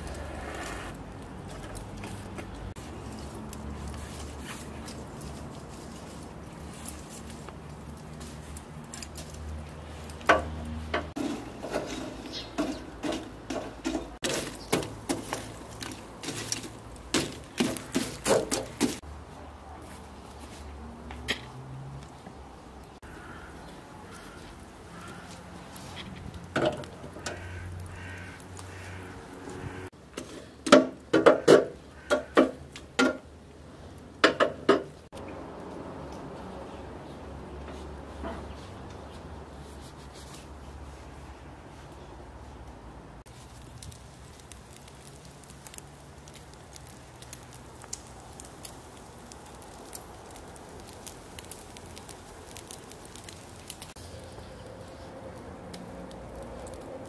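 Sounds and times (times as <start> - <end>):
charcoal lumps knocking together: 10.0 - 19.0.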